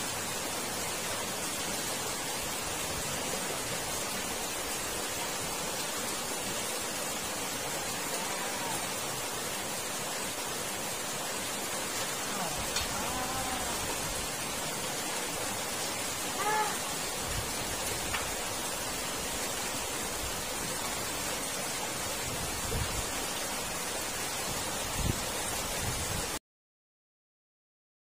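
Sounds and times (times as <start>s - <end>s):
water rushing through culvert: 0.0s - 26.4s
short high call: 16.3s - 17.0s.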